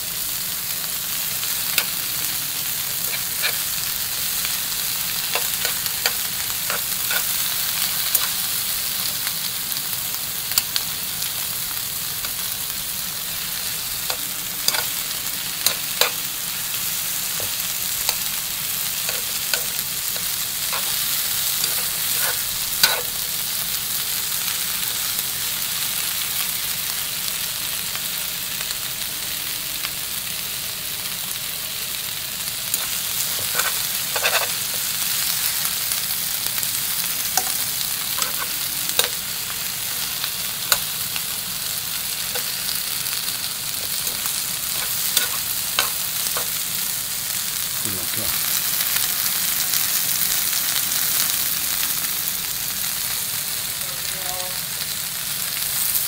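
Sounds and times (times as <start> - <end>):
sausages sizzling in frying pan: 0.0 - 56.0
tongs clicking against pan: 5.2 - 8.4, 14.0 - 15.0, 15.6 - 16.2, 19.0 - 23.2, 32.8 - 34.9, 37.3 - 39.2, 43.8 - 46.6.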